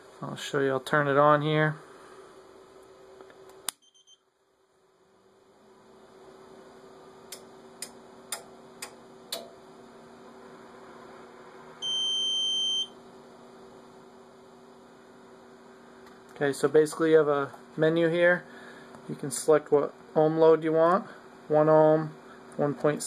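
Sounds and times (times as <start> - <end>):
electrical hum: 0.0 - 23.0
sharp relay clicks: 7.3 - 9.6
buzzer beep: 11.8 - 13.0.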